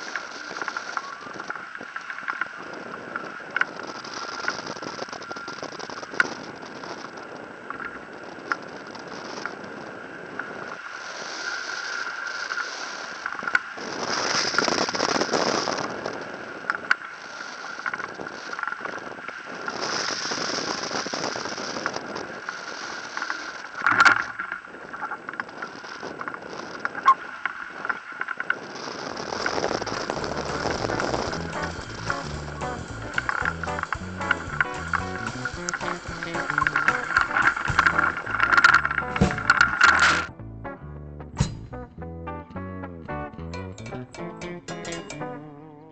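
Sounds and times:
wind rushing over camera: 0:00.0 - 0:40.4
mount clicks and rattles: 0:29.8 - 0:40.3
sharp knock: 0:39.1 - 0:39.8, 0:41.4 - 0:41.8
faint high tone: 0:43.5 - 0:45.9.

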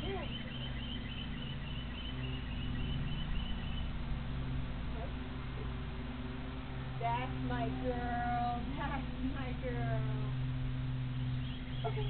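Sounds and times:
bird chirping: 0:00.0 - 0:04.0, 0:11.1 - 0:12.0
low hum: 0:00.0 - 0:12.0.

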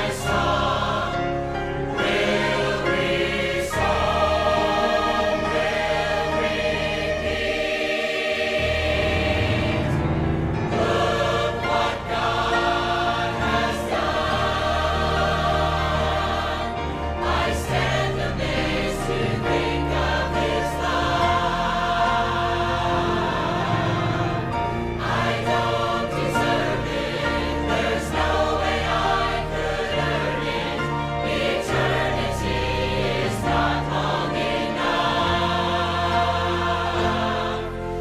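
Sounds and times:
choir singing gospel song: 0:00.0 - 0:38.0.

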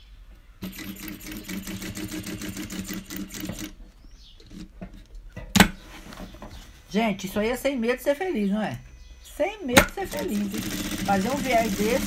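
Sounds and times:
sewing machine stitching: 0:00.6 - 0:03.8, 0:09.8 - 0:12.0.

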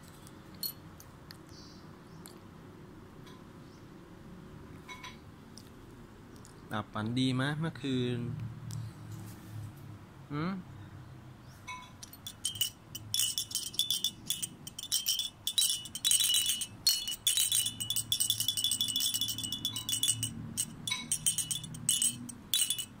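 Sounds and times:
plastic baby rattle shaken: 0:12.1 - 0:23.0.

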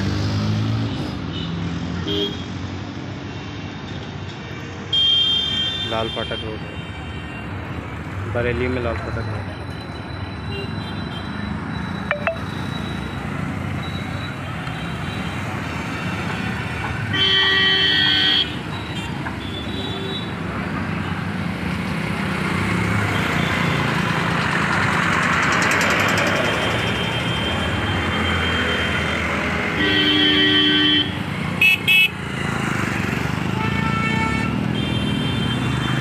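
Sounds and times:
road traffic: 0:00.0 - 0:36.0
truck passing: 0:21.6 - 0:29.8
vehicle horn blasts: 0:29.8 - 0:32.1.

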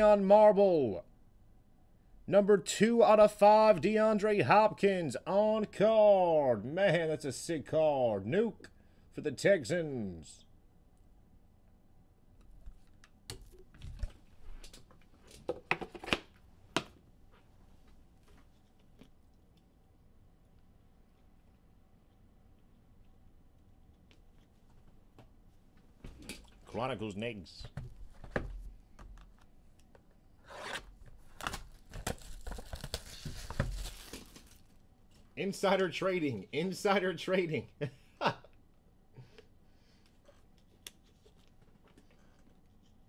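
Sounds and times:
plastic wrap tearing and crinkling: 0:30.7 - 0:34.7.

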